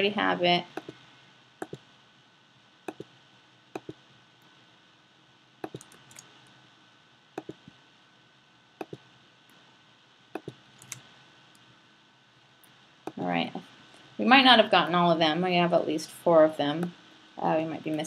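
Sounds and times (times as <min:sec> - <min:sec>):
computer mouse clicking: 0:01.6 - 0:01.8, 0:02.9 - 0:03.1, 0:03.8 - 0:04.0, 0:05.6 - 0:06.4, 0:07.4 - 0:07.8, 0:08.8 - 0:09.0, 0:10.4 - 0:11.1.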